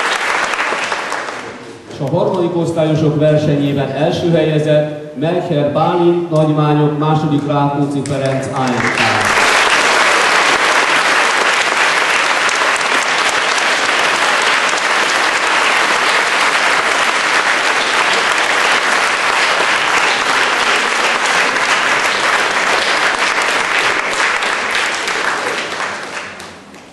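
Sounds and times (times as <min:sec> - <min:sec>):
audience applauding: 0:00.0 - 0:01.7, 0:08.2 - 0:26.9.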